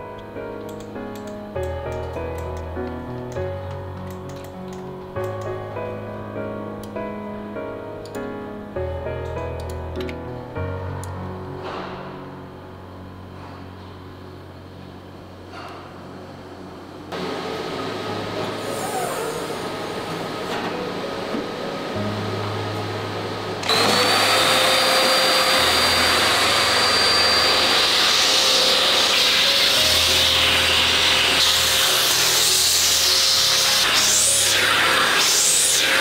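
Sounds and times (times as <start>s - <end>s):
machine hum: 10.6s - 35.0s
vacuum cleaner whining: 17.1s - 36.0s.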